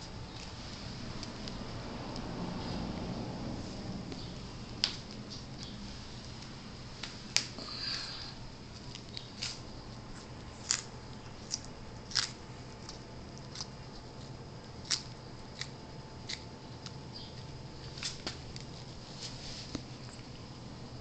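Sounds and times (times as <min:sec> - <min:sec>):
tortoise crunching lettuce: 0:08.7 - 0:20.3.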